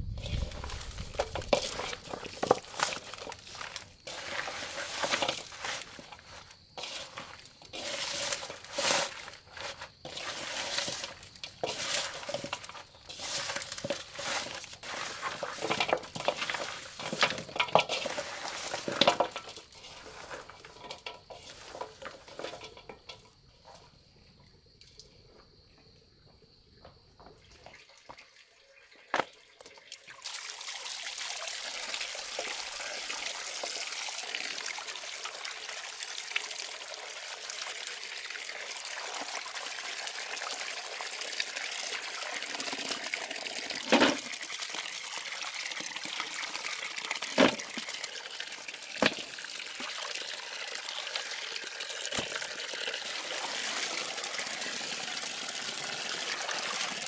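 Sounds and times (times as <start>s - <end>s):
wet liquid sounds: 0.0s - 23.3s, 29.2s - 57.0s
dishes and utensils clattering: 10.0s - 23.4s.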